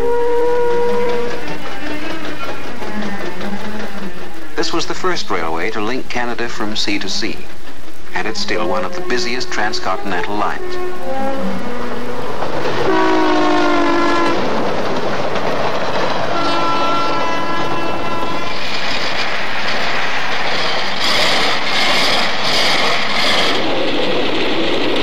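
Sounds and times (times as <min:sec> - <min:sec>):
locomotive air horn blasts: 0:00.0 - 0:02.2, 0:08.2 - 0:12.1, 0:12.8 - 0:14.5, 0:16.3 - 0:18.5
train rumble and wheel clatter: 0:00.0 - 0:25.0.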